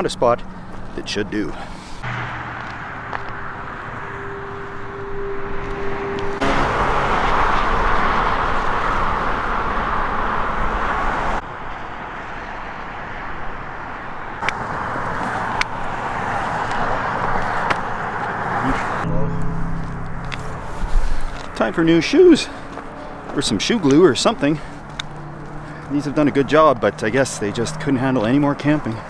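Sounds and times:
highway traffic noise: 0.0 - 29.0
footsteps on concrete: 22.6 - 24.0.

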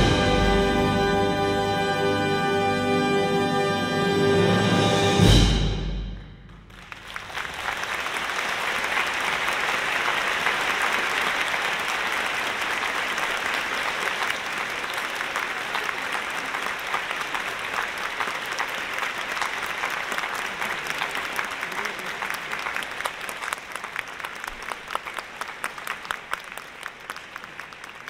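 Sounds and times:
audience applauding: 6.5 - 28.0.

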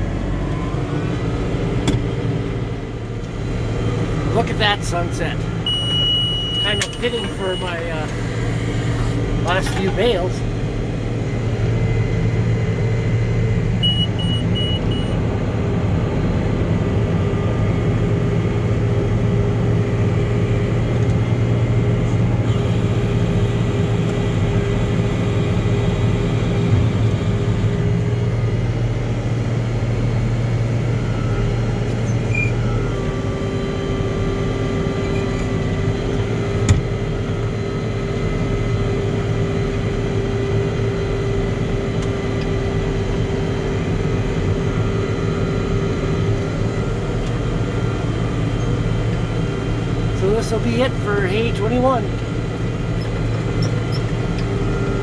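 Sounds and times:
tractor engine running: 0.0 - 55.0.

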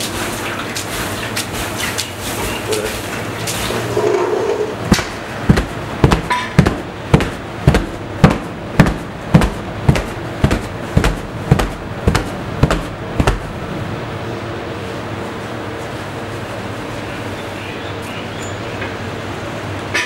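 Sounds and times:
low steady hum: 0.0 - 20.0
sharp knocks: 4.9 - 13.5.

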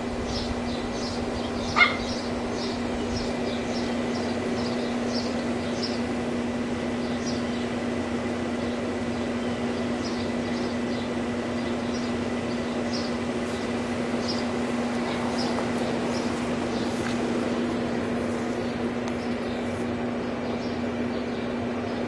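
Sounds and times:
dogs yapping: 1.4 - 2.8
sharp dog bark: 1.8 - 2.0.

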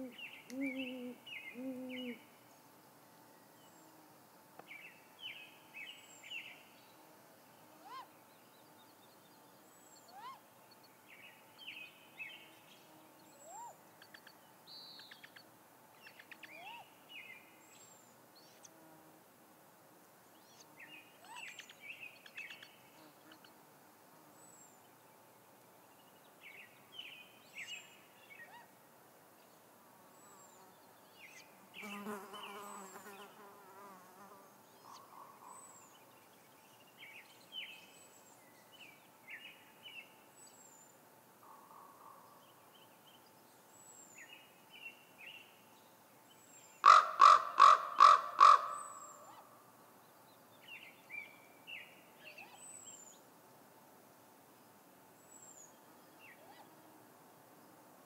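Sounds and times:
wavering bird call: 0.0 - 2.2
songbirds chirping: 0.0 - 19.0, 19.7 - 58.0
crow cawing harshly: 46.8 - 48.8.

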